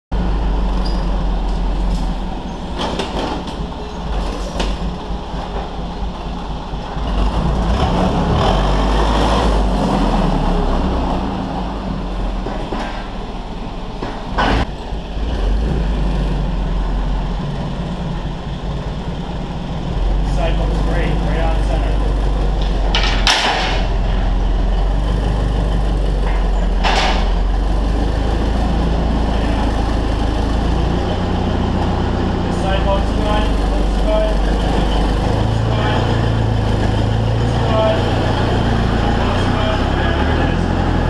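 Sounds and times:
forklift engine idling: 0.1 - 41.0
metallic knocks and clanks: 12.3 - 13.3, 14.0 - 14.7, 22.5 - 25.0, 26.1 - 27.6.

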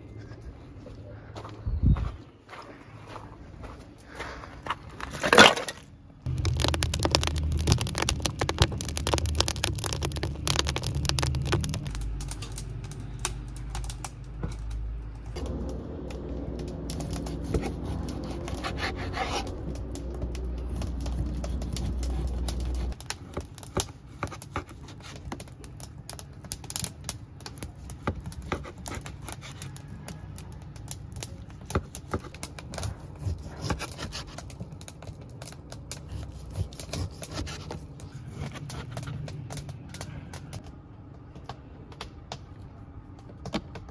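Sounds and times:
steady low rumble: 6.2 - 23.0.

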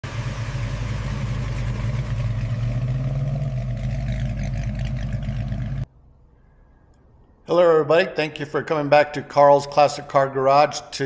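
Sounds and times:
car engine idling: 0.0 - 5.9.

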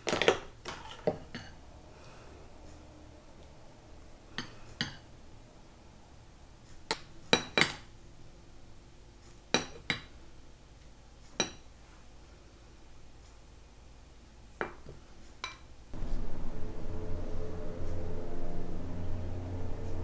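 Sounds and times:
dishes and utensils clinking: 0.0 - 1.6, 7.3 - 7.9.

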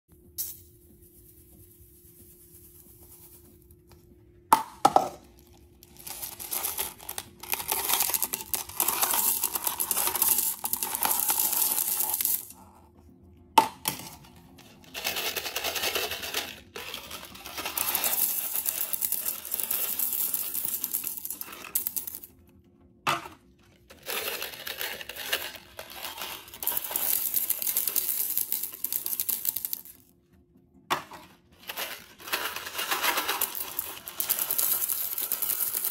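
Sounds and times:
hard candies rattling into a bowl: 4.9 - 12.6, 14.1 - 22.4, 23.8 - 30.1, 31.5 - 35.9.

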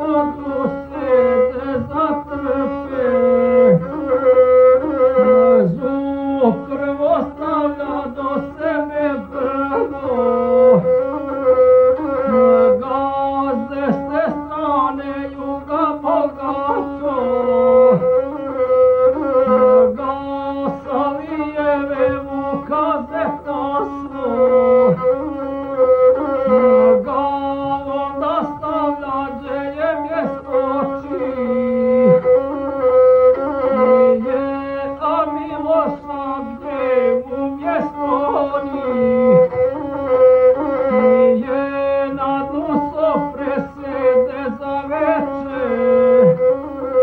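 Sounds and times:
man chanting an epic song: 0.0 - 18.4, 19.3 - 25.1, 25.8 - 32.4, 33.4 - 47.0
bowed folk fiddle: 0.0 - 47.0.

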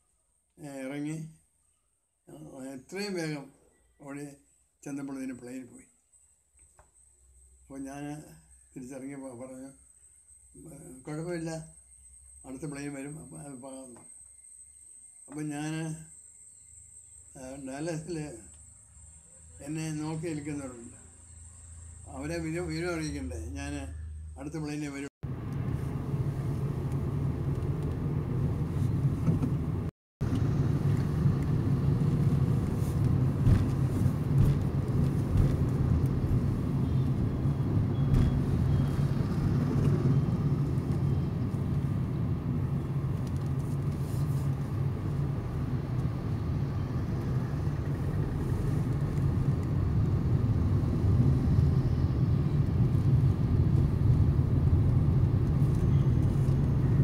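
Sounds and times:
car engine and tyre rumble: 25.2 - 57.0.

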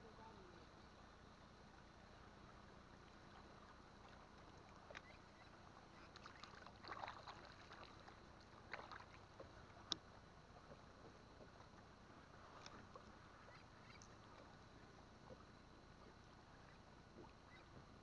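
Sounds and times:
water sloshing against boat hull: 2.6 - 18.0
light splashes: 3.0 - 17.8.

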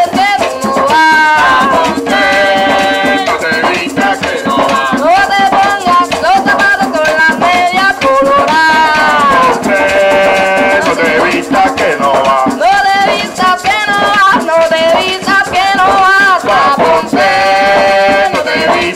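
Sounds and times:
barrel drums: 0.0 - 18.9
maraca shaking: 0.0 - 18.9
person singing long notes: 0.6 - 6.9, 7.5 - 14.2.

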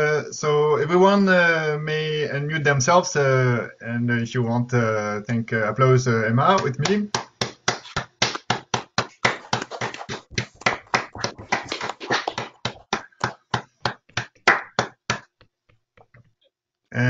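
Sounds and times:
people clapping: 6.6 - 15.3.

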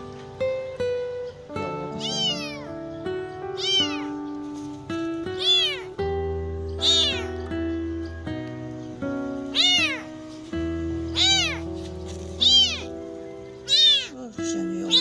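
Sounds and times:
background music with held notes: 0.0 - 15.0
kitten meowing: 1.9 - 2.8, 3.5 - 4.2, 5.3 - 6.0, 6.8 - 7.5, 9.5 - 10.1, 11.1 - 11.7, 12.4 - 13.0, 13.6 - 15.0.

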